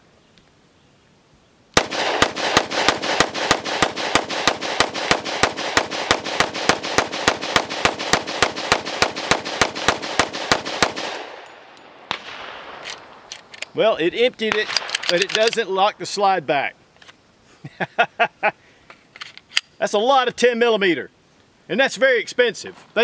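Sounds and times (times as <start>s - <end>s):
pistol rapid shots: 1.8s - 11.5s.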